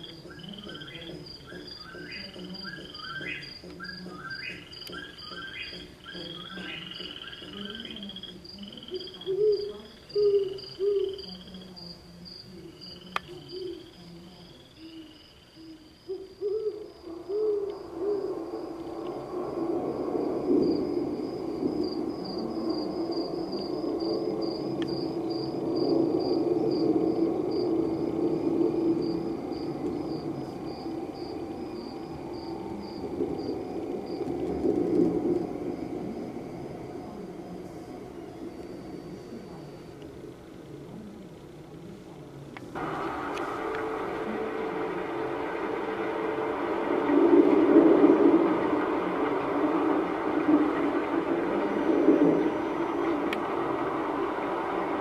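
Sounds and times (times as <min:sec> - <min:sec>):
fast-pulsing high insect call: 0:00.0 - 0:40.8, 0:42.7 - 0:55.0
low hoots: 0:00.0 - 0:42.1
crickets chirping: 0:00.0 - 0:55.0
steady low hum: 0:00.0 - 0:55.0.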